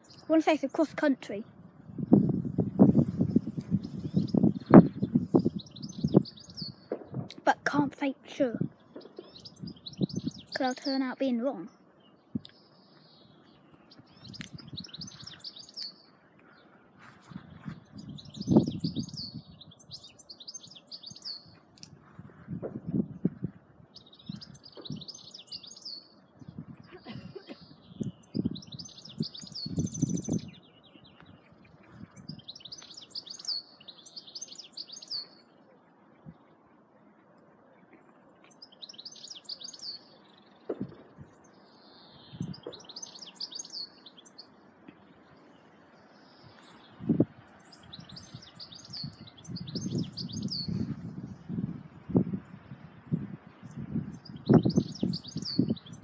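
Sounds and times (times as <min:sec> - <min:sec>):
small birds chirping: 0:00.0 - 0:56.0
low rumbles on microphone: 0:01.5 - 0:07.4, 0:08.6 - 0:10.6, 0:17.3 - 0:20.1, 0:21.4 - 0:25.1, 0:27.6 - 0:32.6, 0:42.2 - 0:43.0, 0:46.6 - 0:56.0
sharp low thump: 0:40.7 - 0:41.2.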